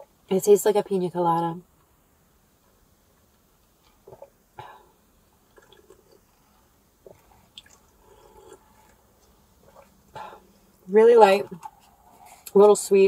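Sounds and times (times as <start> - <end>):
sips and swallows: 3.8 - 4.8, 5.5 - 10.8.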